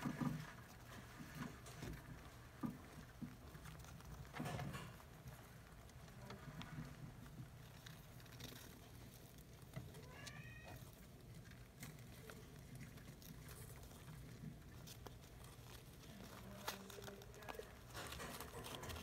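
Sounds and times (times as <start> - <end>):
rustling of paper bedding: 7.4 - 19.0.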